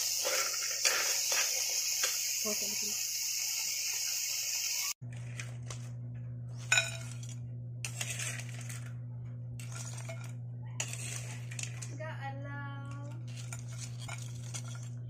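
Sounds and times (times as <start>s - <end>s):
metal spoon scraping a wok: 0.0s - 2.1s, 6.7s - 8.9s, 9.6s - 12.1s, 13.0s - 15.0s
food sizzling in a wok: 0.0s - 5.0s
steady low hum: 5.0s - 15.0s.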